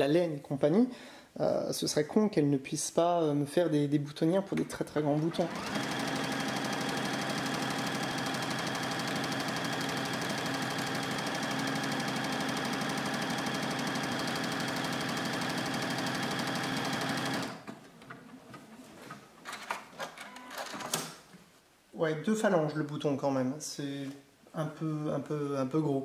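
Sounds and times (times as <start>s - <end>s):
sewing machine stitching: 5.2s - 17.8s.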